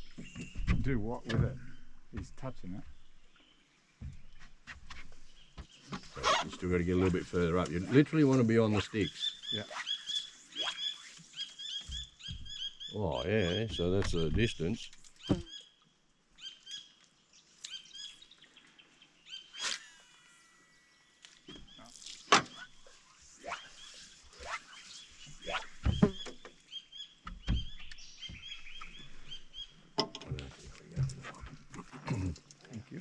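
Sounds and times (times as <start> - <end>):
birds chirping: 0.0 - 32.9
falling whistled bird call: 9.2 - 12.7
sharp knocks: 13.6 - 15.5, 25.8 - 26.5.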